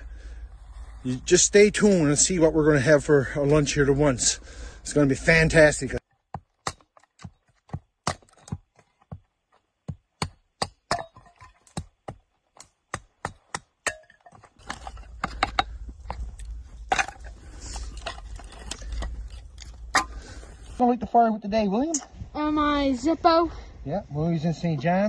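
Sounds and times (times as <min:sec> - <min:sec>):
dry wood cracking: 0:11.5 - 0:20.8.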